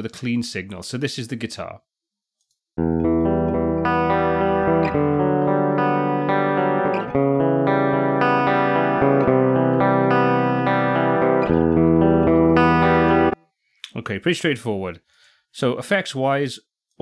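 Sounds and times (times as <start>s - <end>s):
rhythm guitar chords: 2.8s - 13.4s.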